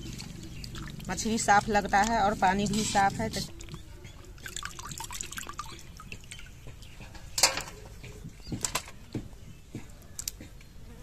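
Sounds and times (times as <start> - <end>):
water splashing into steel bowl: 3.5 - 6.5.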